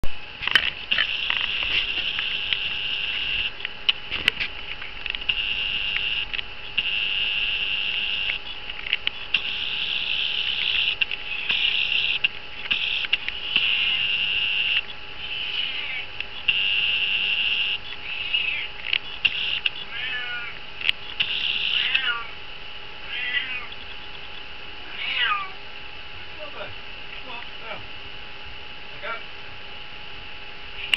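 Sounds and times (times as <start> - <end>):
crickets chirping: 5.2 - 22.4.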